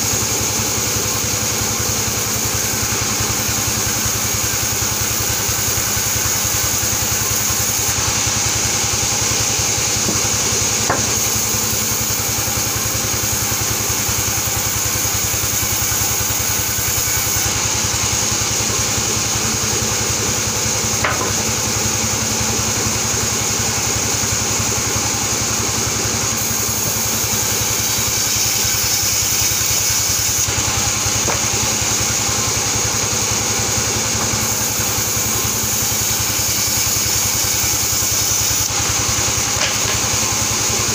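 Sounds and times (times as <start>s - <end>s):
band saw ripping wood: 5.2s - 17.6s, 26.4s - 32.6s, 33.8s - 40.9s.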